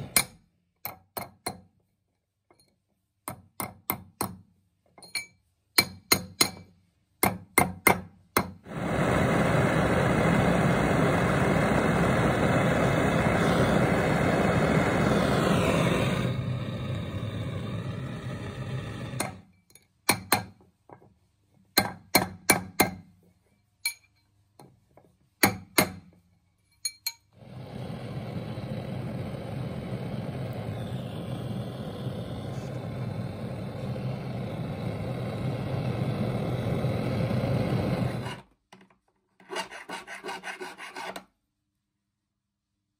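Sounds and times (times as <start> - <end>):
gas torch flame hissing: 0.0 - 0.2, 8.6 - 19.4, 27.4 - 38.4
loud steady rushing noise: 8.7 - 19.2.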